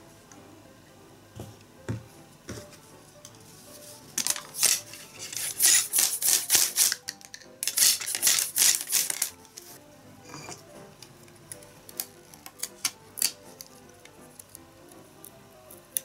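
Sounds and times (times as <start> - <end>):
knife scraping bamboo: 4.6 - 7.0.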